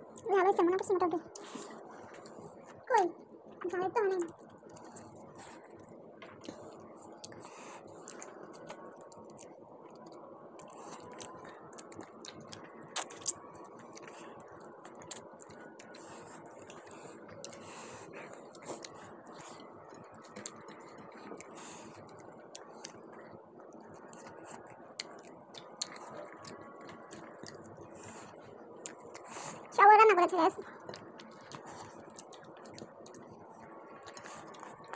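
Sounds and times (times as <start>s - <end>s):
people chewing: 1.3s - 3.1s, 4.2s - 29.8s, 30.6s - 34.9s.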